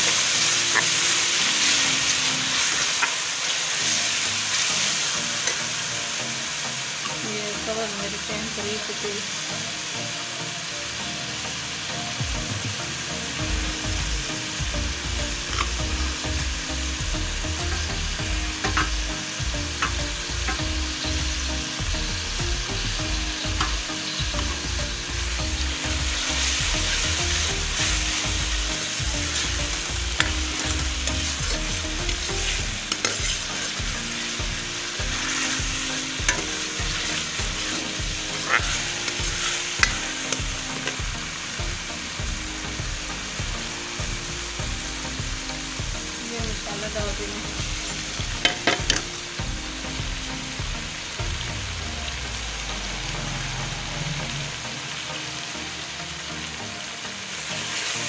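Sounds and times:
spoon stirring and scraping pan: 0.0 - 3.3, 26.2 - 41.0
masala sizzling in hot oil: 0.0 - 58.0.

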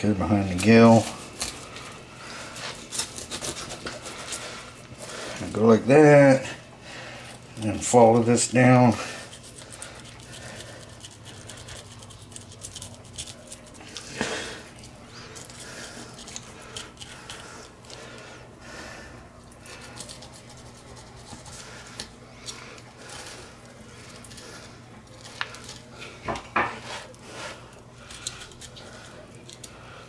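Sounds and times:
knife cutting fish: 2.7 - 4.4.

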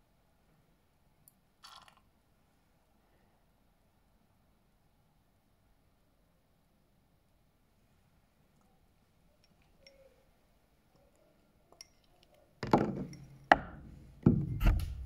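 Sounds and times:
hard objects knocking and clinking: 11.7 - 15.0.

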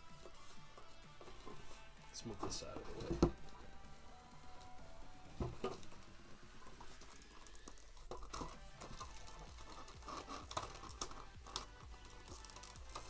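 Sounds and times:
plastic knocking and scraping: 2.3 - 3.7, 5.3 - 13.0.

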